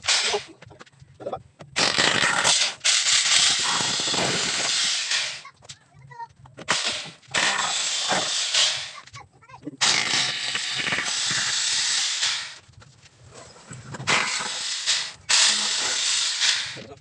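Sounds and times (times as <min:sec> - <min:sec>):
hammer drill boring into masonry: 0:01.8 - 0:05.4, 0:06.6 - 0:09.0, 0:09.8 - 0:12.6, 0:14.0 - 0:16.9.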